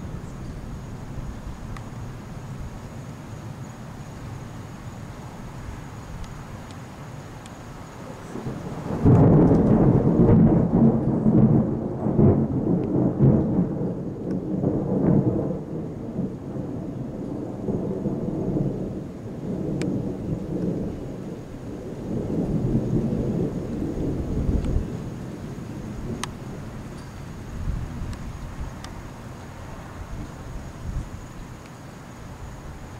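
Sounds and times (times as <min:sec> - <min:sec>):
thunder rumbling: 0:07.5 - 0:31.6.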